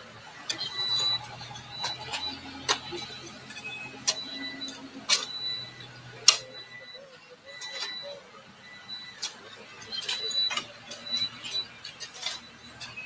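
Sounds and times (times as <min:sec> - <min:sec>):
shovel striking gravelly earth: 0:05.1 - 0:05.4, 0:10.0 - 0:13.0.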